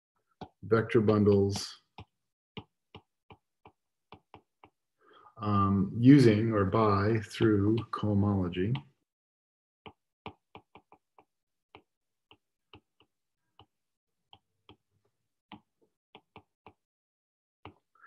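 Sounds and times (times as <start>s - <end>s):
stylus tapping on tablet: 1.5s - 4.9s, 7.4s - 8.1s, 9.8s - 14.9s, 15.5s - 16.8s, 17.6s - 17.9s.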